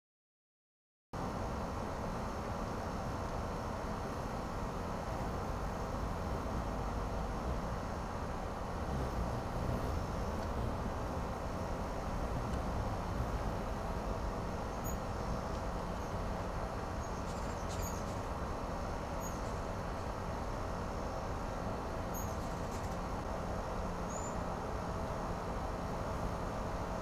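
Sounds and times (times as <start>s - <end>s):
faint steady hum: 1.2s - 27.0s
outdoor hiss and rumble: 1.2s - 27.0s.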